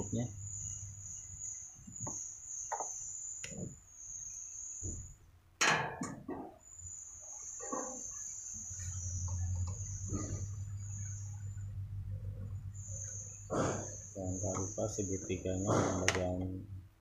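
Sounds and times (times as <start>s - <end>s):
low hum: 8.6s - 17.0s.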